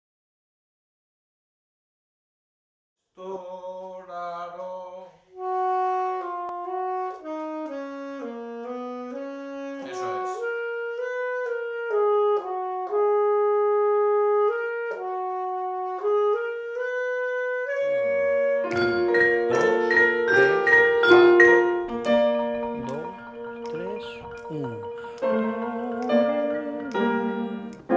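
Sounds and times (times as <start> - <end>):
saxophone playing: 5.3 - 27.9
trombone playing: 5.4 - 27.9
vibraphone and marimba notes: 18.7 - 27.7.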